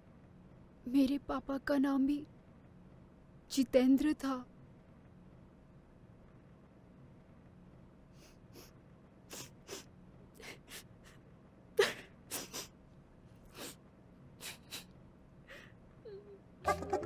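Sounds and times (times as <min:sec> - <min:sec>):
woman sniffing and sobbing: 0:08.1 - 0:11.2, 0:11.8 - 0:12.8, 0:13.4 - 0:13.8, 0:14.4 - 0:14.9.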